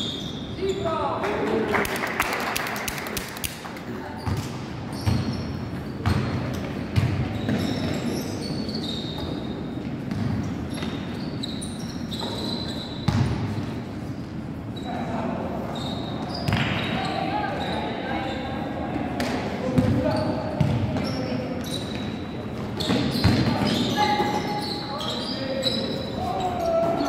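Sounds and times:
sneakers squeaking: 0:00.0 - 0:01.3, 0:03.9 - 0:27.0
basketball bouncing on floor: 0:06.0 - 0:07.8, 0:19.8 - 0:21.1
players' voices: 0:14.8 - 0:27.0.

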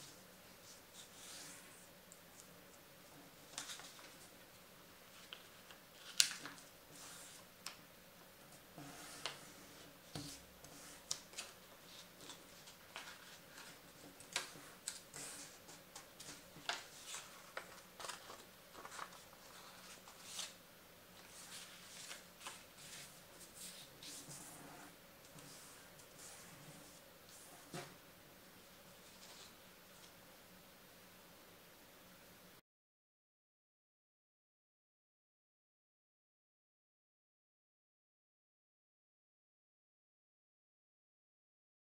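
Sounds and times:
paper crinkling and rustling: 0:03.4 - 0:04.4, 0:05.1 - 0:07.8, 0:09.1 - 0:20.6, 0:21.2 - 0:24.6.

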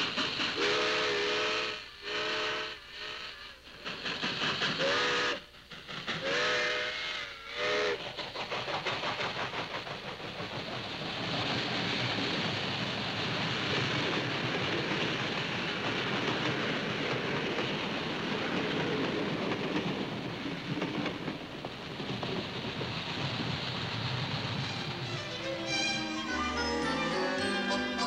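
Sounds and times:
train wheels clattering on rails: 0:00.0 - 0:01.3, 0:03.6 - 0:25.8
steam locomotive whistle: 0:00.5 - 0:03.6, 0:04.8 - 0:05.5, 0:06.2 - 0:08.0, 0:24.6 - 0:28.0.

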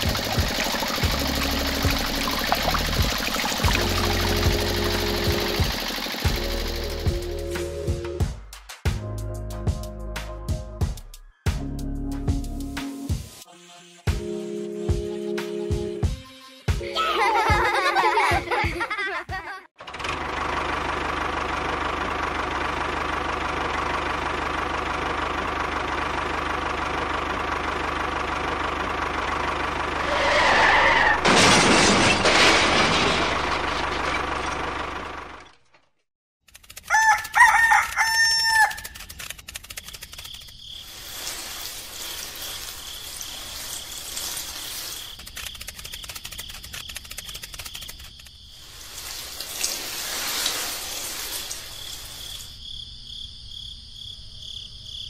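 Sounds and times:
rooster crowing: 0:36.9 - 0:39.0
faint hiss: 0:48.6 - 0:52.5.

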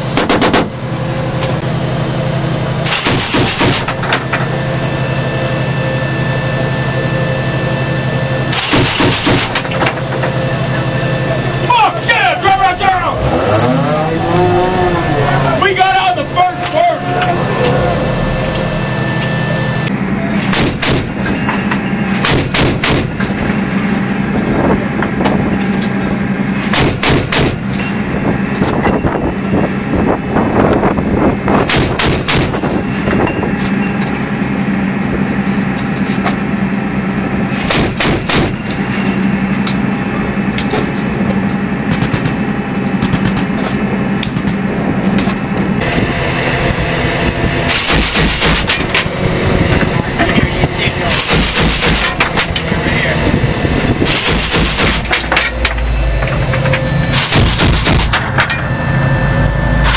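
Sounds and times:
vehicle humming: 0:00.0 - 0:59.9
turret gun firing bursts: 0:22.3 - 0:23.2.

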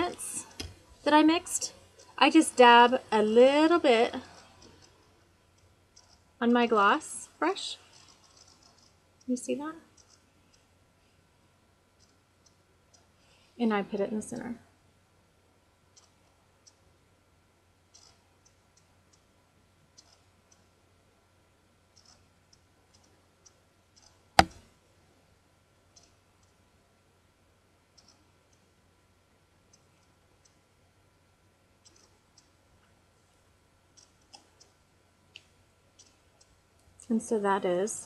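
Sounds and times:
sharp loud click: 0:24.4 - 0:24.6.

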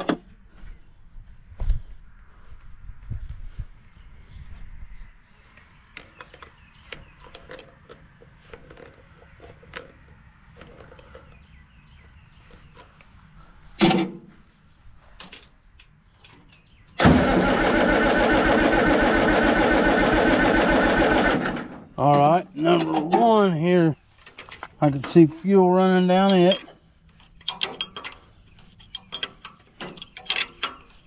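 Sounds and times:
diesel engine starter cranking: 0:16.9 - 0:22.0.

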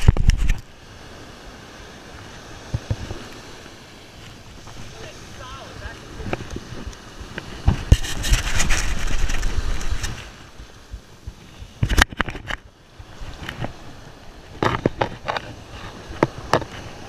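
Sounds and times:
sharp knocks and scrapes: 0:00.0 - 0:00.6, 0:07.6 - 0:10.3, 0:14.5 - 0:17.0
surf washing over sand: 0:00.0 - 0:17.0
wind rumbling on microphone: 0:00.0 - 0:17.0.

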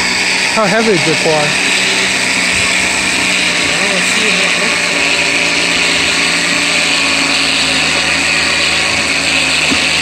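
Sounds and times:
winch motor and gear whine: 0:00.0 - 0:10.0.

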